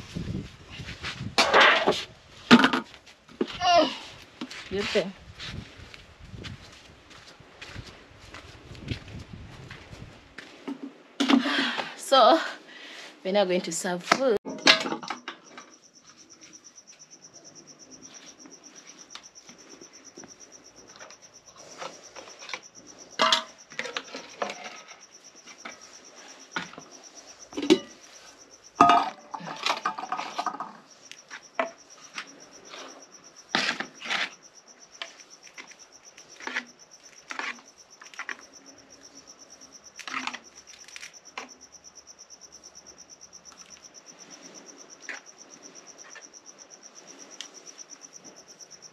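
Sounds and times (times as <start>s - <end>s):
insect trill: 14.2s - 48.9s.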